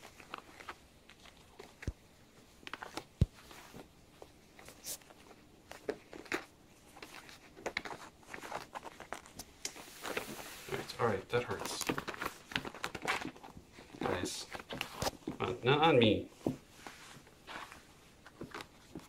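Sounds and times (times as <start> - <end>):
claws scratching fabric: 2.9 - 15.5.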